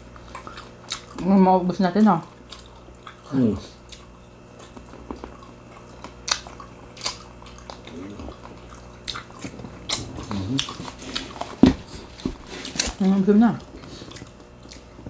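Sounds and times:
crunching and chewing fried food: 0.0s - 15.0s
person humming mm: 7.9s - 8.3s, 10.0s - 10.7s.

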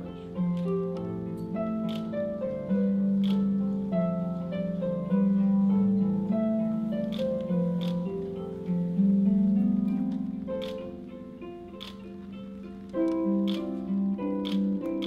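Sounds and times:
slow plucked string music: 0.0s - 15.0s
sharp ticks: 1.8s - 2.2s, 3.2s - 3.5s, 7.0s - 8.1s, 11.8s - 12.0s, 13.1s - 13.8s, 14.4s - 15.0s.

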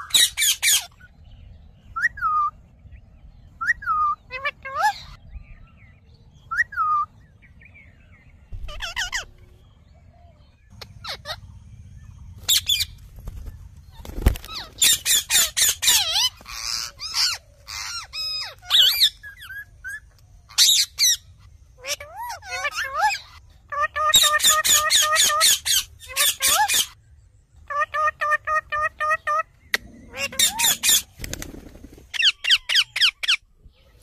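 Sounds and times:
parakeets squawking and screeching: 0.0s - 1.2s, 3.6s - 5.6s, 8.6s - 9.6s, 10.7s - 27.0s, 27.6s - 33.5s.

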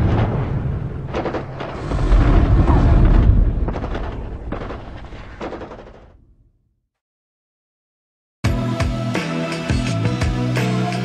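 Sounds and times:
deep booming explosion rumble: 0.0s - 6.5s.

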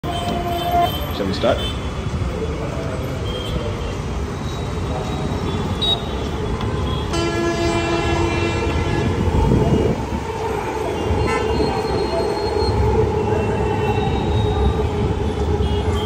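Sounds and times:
road traffic: 0.0s - 16.0s
train rumbling past: 4.0s - 16.0s
train horn: 7.1s - 9.9s, 10.9s - 12.1s.

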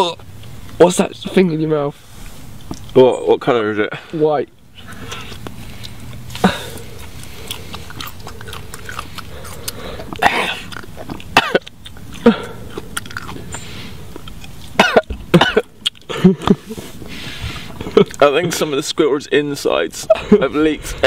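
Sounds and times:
man gagging and coughing: 6.4s - 6.8s, 10.1s - 10.7s, 11.3s - 12.7s, 14.8s - 16.6s.

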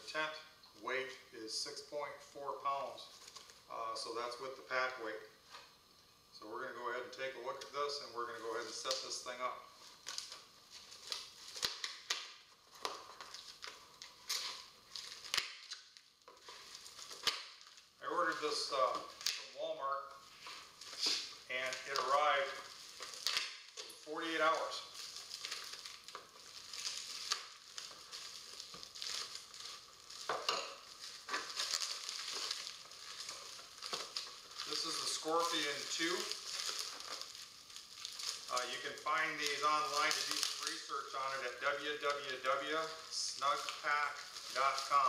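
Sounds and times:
plastic bag rustling and crinkling: 3.0s - 3.7s, 8.2s - 45.0s
plastic ripping: 8.4s - 45.0s
knife cutting plastic wrapping: 10.0s - 19.5s, 20.4s - 45.0s.

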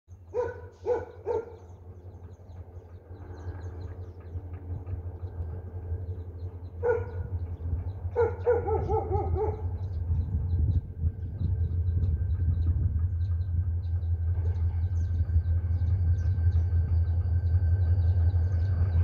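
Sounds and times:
steady low rumble: 0.1s - 19.0s
dog barking: 0.3s - 1.6s, 6.8s - 7.3s, 8.1s - 9.8s.

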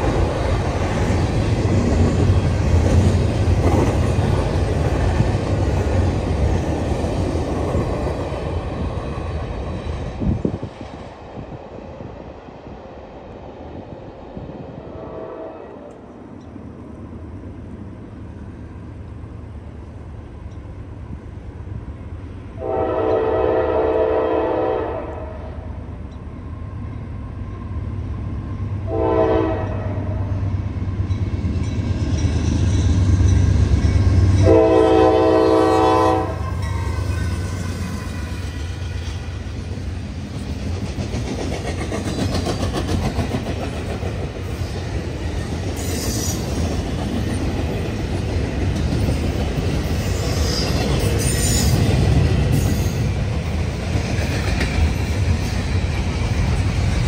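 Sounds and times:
train wheels clicking over rail joints: 0.0s - 11.0s, 36.5s - 57.0s
locomotive horn blasts: 22.6s - 25.6s, 28.9s - 30.3s, 34.4s - 36.6s.

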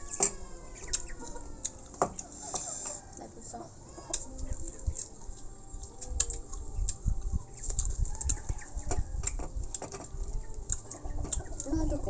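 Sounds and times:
chewing: 0.3s - 3.2s, 3.9s - 12.0s.

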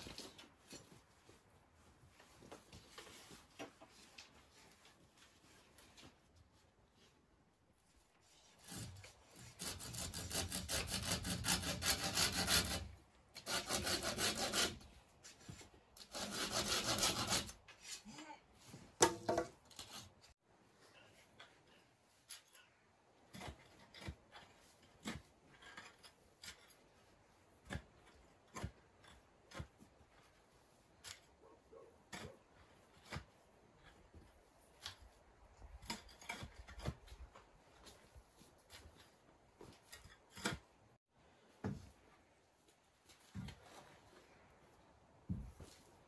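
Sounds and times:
hand saw cutting wood: 8.3s - 14.9s, 16.0s - 17.6s.

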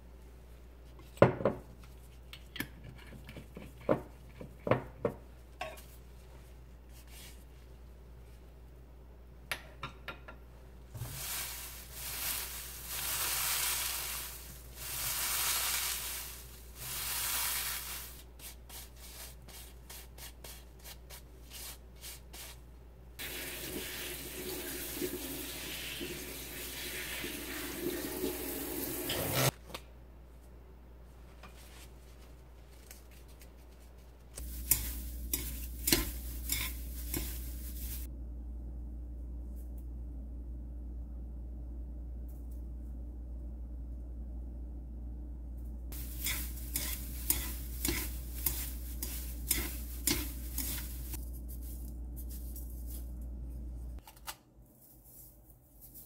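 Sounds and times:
dried seaweed crackling and rustling: 10.9s - 19.7s, 32.7s - 38.1s, 46.0s - 53.2s.

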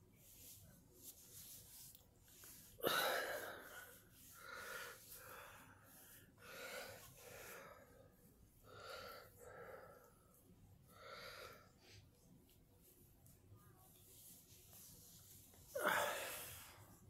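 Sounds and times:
woman breathing hard: 15.8s - 16.8s.

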